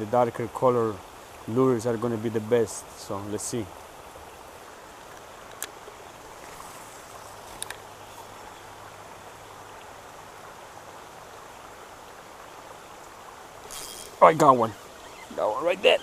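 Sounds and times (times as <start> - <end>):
rain falling on pond water: 0.0 - 16.0
fishing reel cranking hum: 13.6 - 16.0
fishing reel clicks: 13.7 - 14.2.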